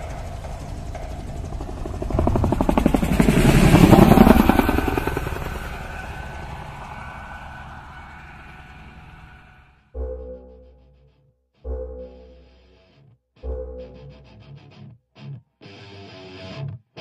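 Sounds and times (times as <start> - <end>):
helicopter rotor chopping: 0.0 - 9.7.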